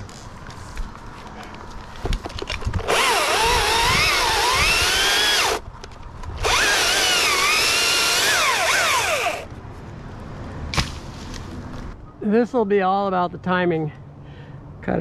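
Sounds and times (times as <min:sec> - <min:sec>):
chainsaw cutting wood: 0:02.8 - 0:05.6, 0:06.4 - 0:09.5.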